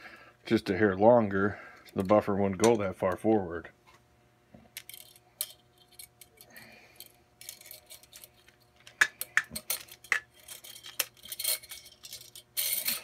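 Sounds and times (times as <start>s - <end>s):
spring coils rattling on metal: 9.2s - 13.0s.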